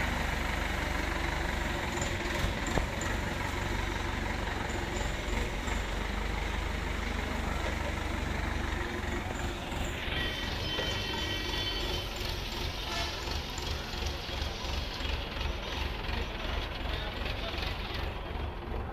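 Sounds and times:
forklift engine running: 0.0s - 18.9s.

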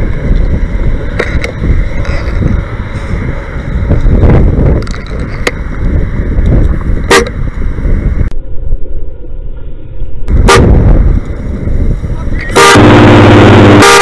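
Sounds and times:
road traffic rumble: 0.0s - 14.0s
wind on microphone: 0.0s - 14.0s
car horn toot: 12.5s - 14.0s.

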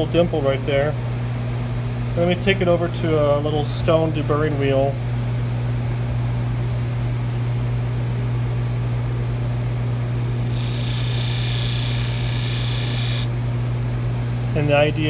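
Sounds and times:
electric motor humming: 10.2s - 13.3s
metal grinding on stone wheel: 10.2s - 13.3s.

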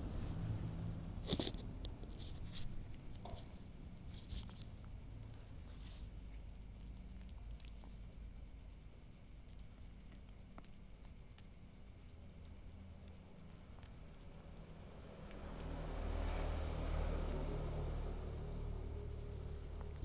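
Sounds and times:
kitten chewing and licking: 1.2s - 15.6s.

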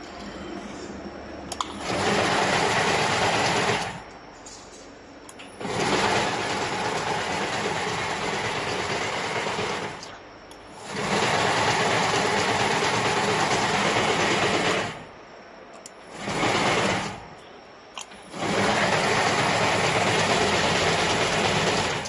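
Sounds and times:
braiding machine clattering: 1.6s - 4.0s, 5.5s - 10.2s, 10.8s - 15.1s, 16.0s - 17.3s, 18.0s - 22.0s.

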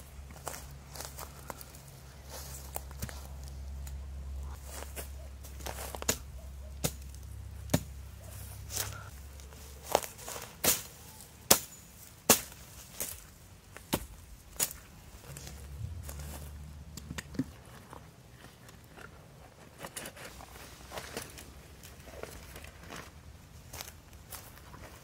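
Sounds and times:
tent stakes being hammered: 5.0s - 8.0s, 9.9s - 14.8s.

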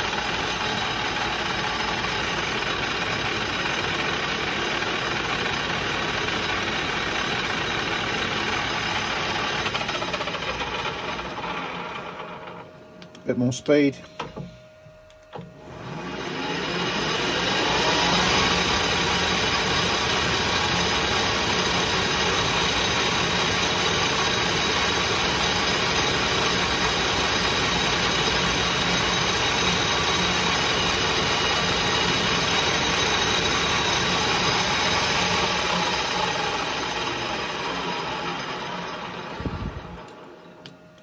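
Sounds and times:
metal lathe running: 0.0s - 12.7s, 15.6s - 40.2s.

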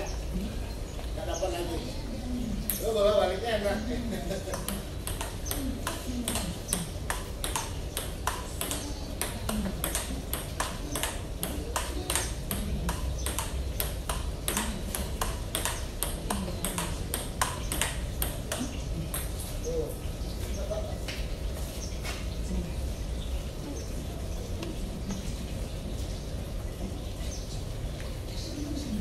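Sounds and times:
table tennis ball hits: 4.5s - 19.4s.

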